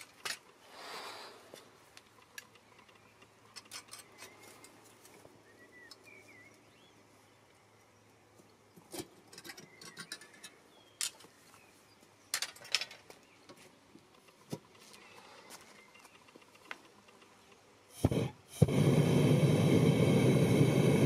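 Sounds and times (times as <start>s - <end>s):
faint bird chirps: 2.4s - 8.2s, 9.4s - 12.3s, 14.7s - 17.7s.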